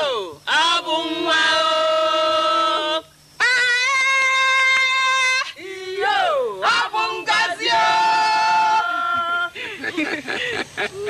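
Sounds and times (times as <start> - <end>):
women singing: 0.0 - 4.2, 4.8 - 9.6.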